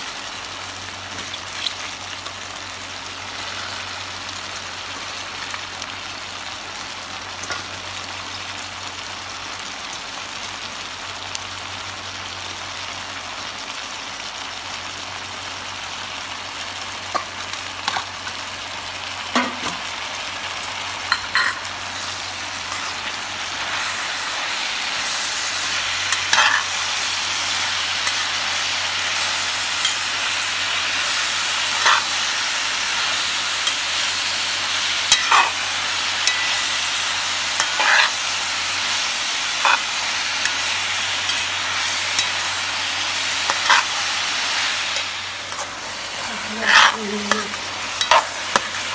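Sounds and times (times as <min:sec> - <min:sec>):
greens sizzling in a pan: 0:00.0 - 0:48.9
metal utensil scraping a pan: 0:26.1 - 0:26.7, 0:31.7 - 0:32.2, 0:35.1 - 0:35.6, 0:36.2 - 0:36.6, 0:37.6 - 0:38.2, 0:39.6 - 0:42.5, 0:43.4 - 0:44.2, 0:44.9 - 0:48.9.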